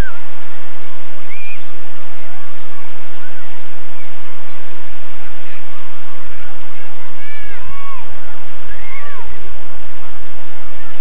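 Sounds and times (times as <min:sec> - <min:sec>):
surf: 0:00.0 - 0:11.0
wind on microphone: 0:00.0 - 0:11.0
faint distant shouts: 0:06.6 - 0:09.7.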